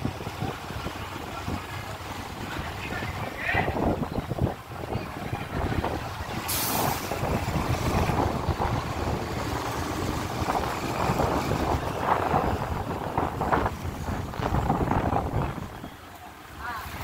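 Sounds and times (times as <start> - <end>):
diesel bus engines rumbling: 0.0 - 17.0
bus air brakes hissing: 6.4 - 7.4.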